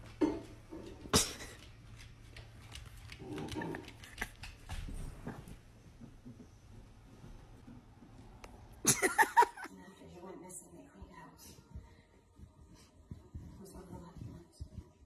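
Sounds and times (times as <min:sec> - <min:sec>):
dog paws clicking on wooden floor: 0:00.0 - 0:08.7, 0:10.9 - 0:15.0.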